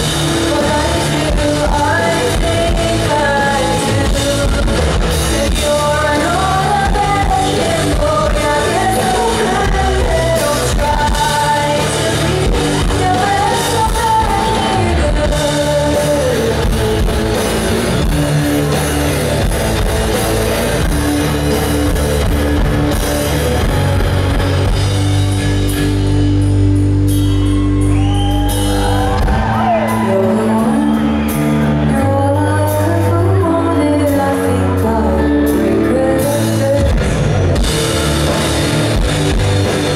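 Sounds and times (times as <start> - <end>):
woman singing: 0.0 - 17.4, 29.7 - 37.1
drums: 0.0 - 39.9
electric guitars: 0.0 - 39.9.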